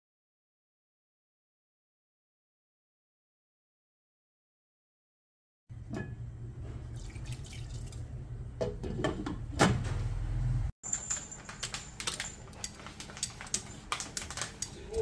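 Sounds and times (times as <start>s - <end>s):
water heating with low rumble: 5.7s - 10.7s.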